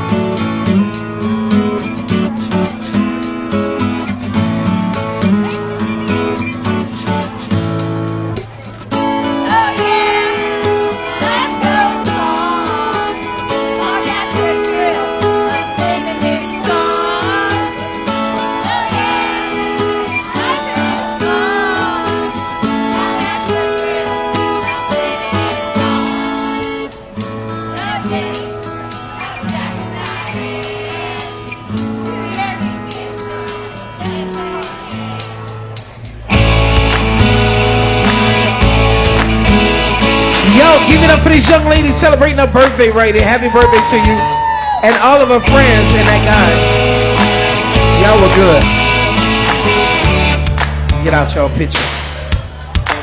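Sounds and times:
karaoke backing track over speakers: 0.0 - 53.0
group singing into microphones: 9.4 - 26.8, 27.5 - 35.6.

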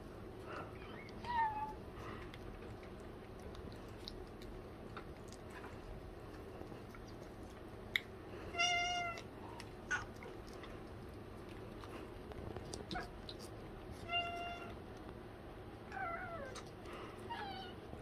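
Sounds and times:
cat meowing: 8.5 - 9.2, 14.0 - 14.8.

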